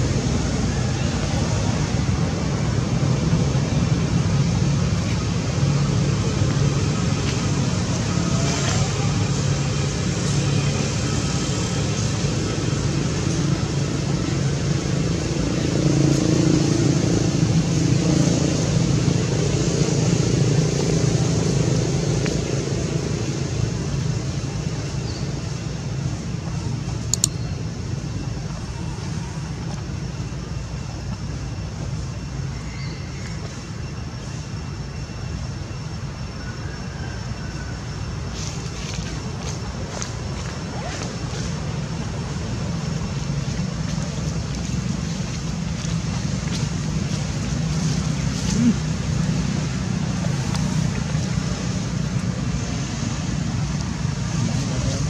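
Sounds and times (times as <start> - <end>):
vehicle engine rumble: 0.0 - 55.0
sharp click: 27.1 - 27.4.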